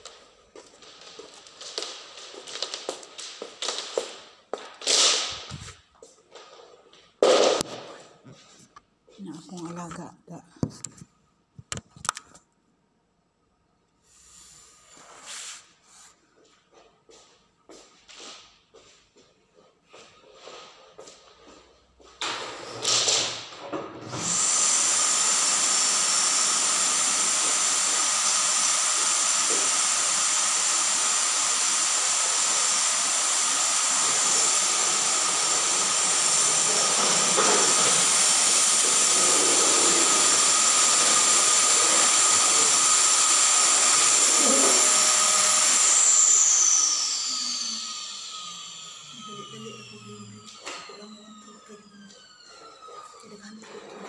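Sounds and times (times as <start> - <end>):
vacuum cleaner motor whining: 0.0 - 5.7, 22.3 - 54.0.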